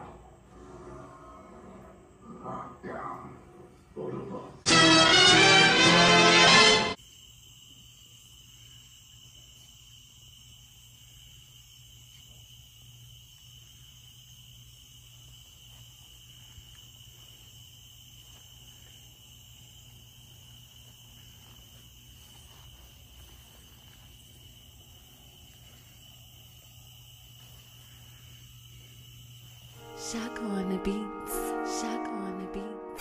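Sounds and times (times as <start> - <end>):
crickets chirring: 6.9 - 33.0.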